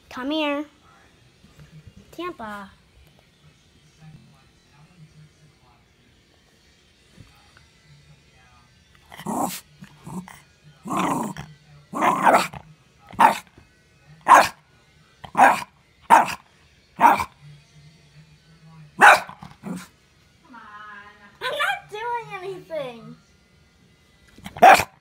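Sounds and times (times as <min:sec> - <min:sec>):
dog barking sharply: 0:14.3 - 0:14.5, 0:15.4 - 0:16.4, 0:19.0 - 0:19.4, 0:24.6 - 0:24.9.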